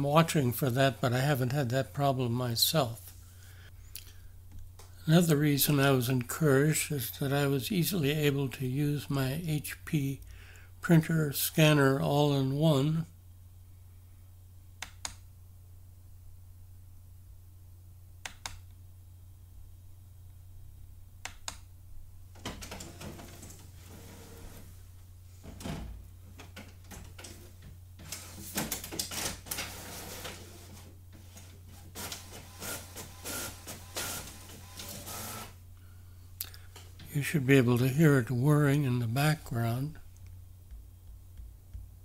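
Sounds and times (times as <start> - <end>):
steady low hum: 0.0 - 28.6, 29.6 - 42.0
printer whirring and clacking: 31.8 - 35.6.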